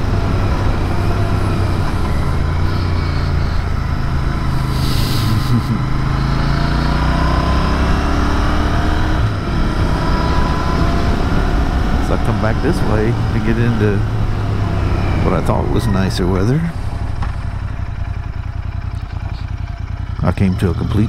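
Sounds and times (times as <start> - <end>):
motorcycle engine running: 0.0 - 21.0
brief hiss: 4.7 - 5.4.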